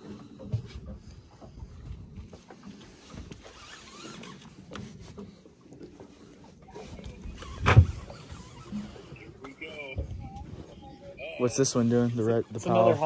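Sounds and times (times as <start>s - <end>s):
fishing reel clicks and rubbing: 3.4s - 4.5s.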